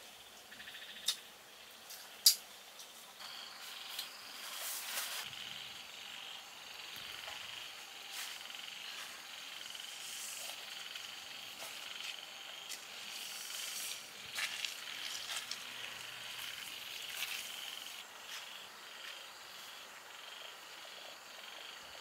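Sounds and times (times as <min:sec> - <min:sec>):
night insects and frogs chorus: 0:00.0 - 0:22.0
rustling: 0:04.3 - 0:05.3
footsteps: 0:06.9 - 0:09.3, 0:11.5 - 0:19.2.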